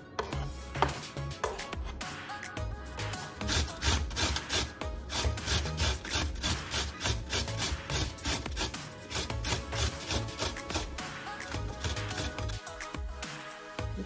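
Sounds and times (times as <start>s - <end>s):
background music: 0.0s - 14.0s
carrot grating on metal grater: 3.2s - 12.6s.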